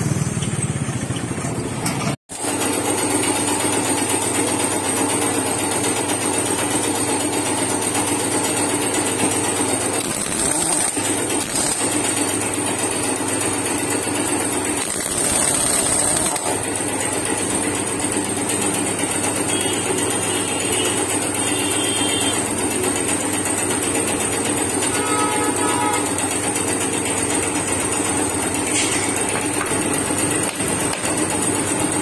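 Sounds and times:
pneumatic impact wrench rattling: 1.8s - 19.7s, 26.6s - 32.0s
steady mechanical drone: 8.7s - 23.1s.

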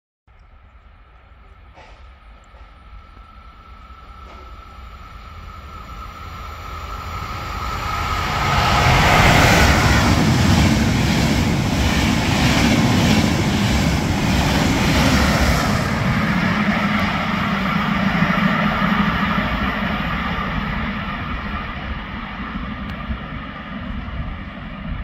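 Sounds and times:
train rumble: 0.3s - 25.0s
train wheels clattering: 1.4s - 3.4s.

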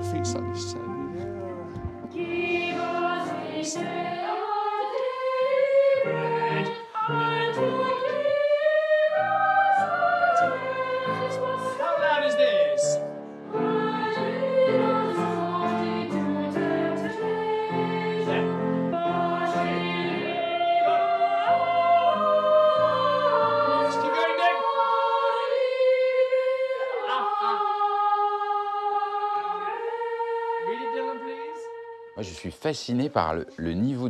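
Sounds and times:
piano chords: 0.0s - 4.6s
boys' choir singing: 0.0s - 32.2s.

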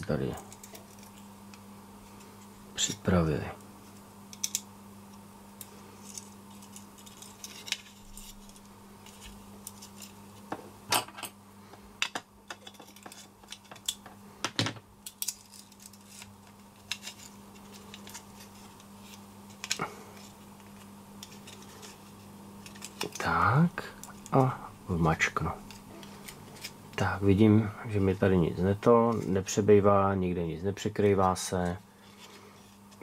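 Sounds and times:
small parts clicking and clinking: 4.3s - 4.7s, 15.0s - 18.2s.

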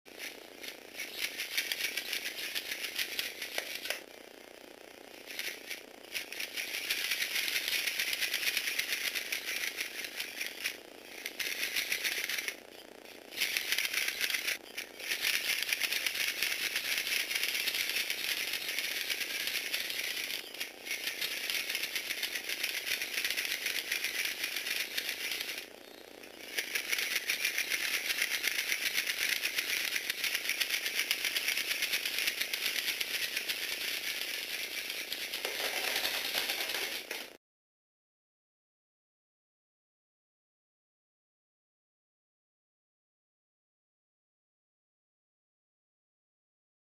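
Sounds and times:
toy robot gears rattling: 0.1s - 4.1s, 5.2s - 37.4s.

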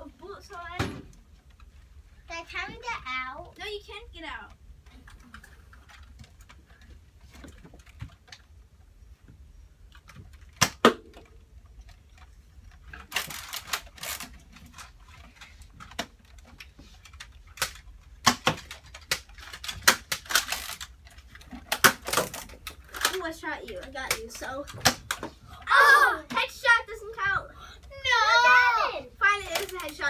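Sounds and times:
toy blaster plastic clicks: 17.5s - 20.9s, 21.7s - 23.2s, 29.4s - 30.0s.

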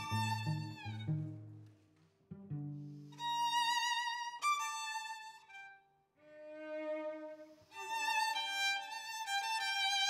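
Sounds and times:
violin cello and piano trio: 0.0s - 5.6s, 6.2s - 10.0s.

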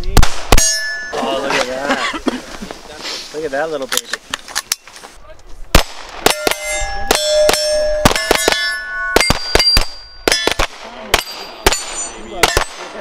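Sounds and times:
pistol shots: 0.1s - 1.0s, 5.7s - 13.0s
steel plate ringing: 0.6s - 1.5s, 6.2s - 12.7s.

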